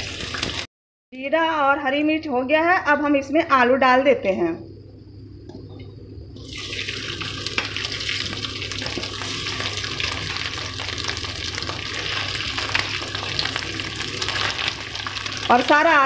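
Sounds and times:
potatoes sizzling in hot fat: 0.0s - 0.7s, 6.4s - 16.0s
low steady hum: 1.2s - 16.0s.

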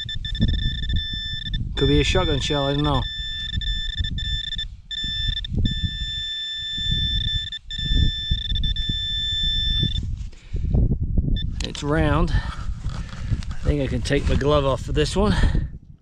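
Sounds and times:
metal detector high-pitched tone: 0.0s - 10.1s.

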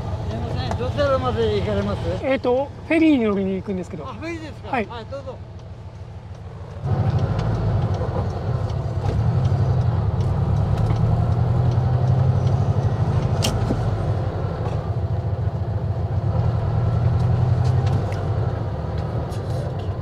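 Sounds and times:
car engine droning: 4.0s - 20.0s.

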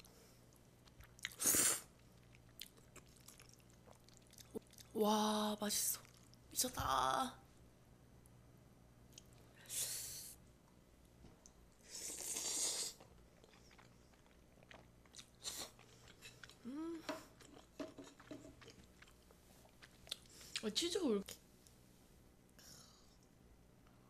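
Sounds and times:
chewing with wet mouth clicks: 0.8s - 1.4s, 2.0s - 5.0s, 13.0s - 16.7s, 17.3s - 20.7s
person slurping noodles: 1.2s - 1.9s, 11.8s - 13.0s
person humming: 16.6s - 17.3s.

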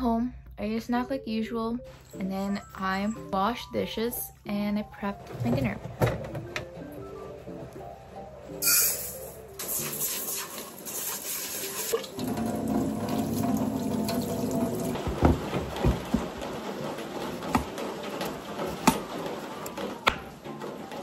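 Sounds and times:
water splashing on pan: 9.6s - 14.9s.

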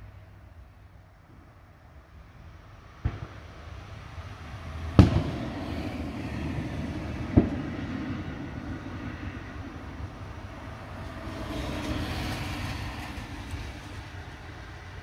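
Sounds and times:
steady noisy rumble: 0.0s - 15.0s
fireworks bangs echoing: 3.0s - 3.5s, 5.0s - 8.3s.

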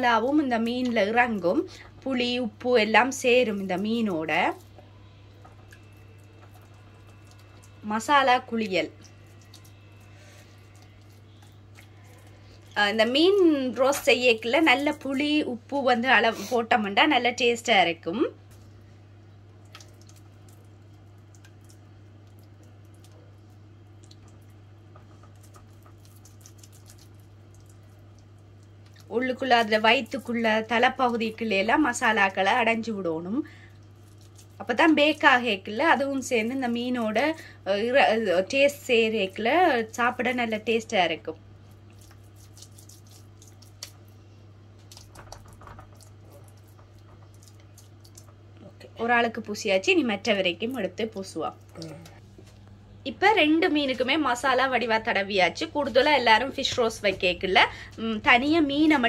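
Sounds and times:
steady low hum: 0.0s - 59.0s
fingers squelching wet paste: 3.5s - 7.9s, 8.6s - 15.0s, 19.6s - 32.3s, 33.8s - 35.2s, 41.7s - 44.2s, 44.8s - 48.5s.

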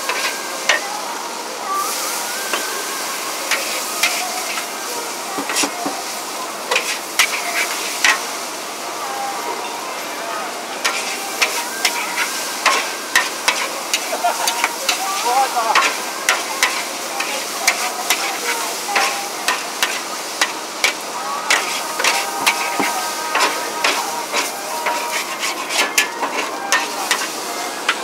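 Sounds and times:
noodles sizzling in a wok: 0.0s - 9.6s, 10.2s - 28.0s
spatula scraping a wok: 0.1s - 0.8s, 3.5s - 4.7s, 6.7s - 8.3s, 10.8s - 28.0s.

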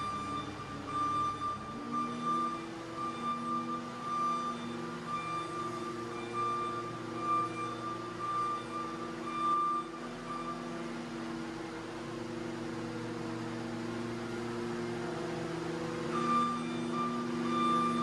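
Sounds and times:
backup alarm beeping: 0.0s - 11.0s, 15.9s - 18.0s
diesel engine running: 0.0s - 18.0s.

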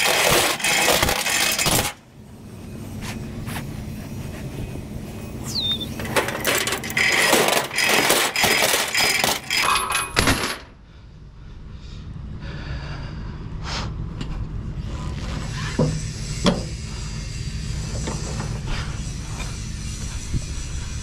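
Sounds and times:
metal chains rattling: 0.0s - 2.0s, 5.7s - 10.7s
low steady hum: 1.5s - 21.0s.

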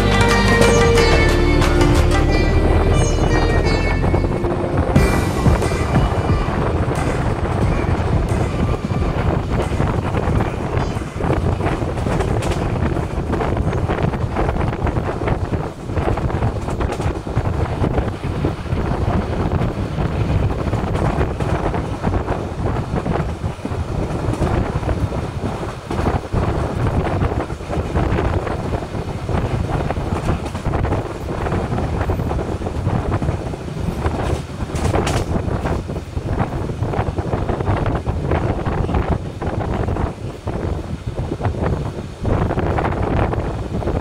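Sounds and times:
train rumbling on track: 0.0s - 44.0s
wind buffeting microphone: 2.6s - 44.0s.

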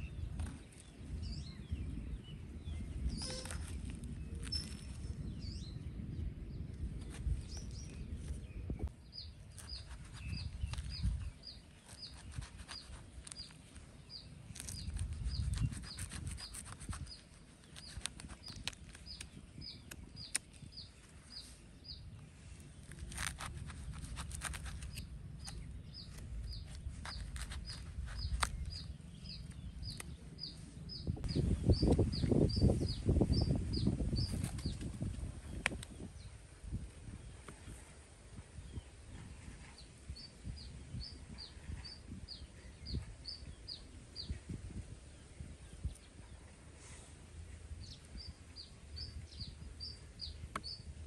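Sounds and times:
knife cutting and scraping fruit: 3.1s - 5.2s, 9.2s - 33.0s, 33.7s - 36.1s.

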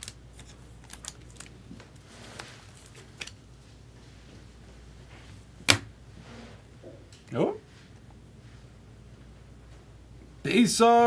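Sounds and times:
cards and wrappers rustling: 0.0s - 3.4s.

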